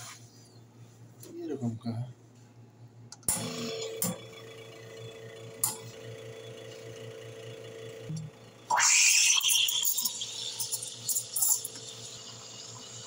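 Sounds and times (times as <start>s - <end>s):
espresso machine pump humming: 3.3s - 13.0s.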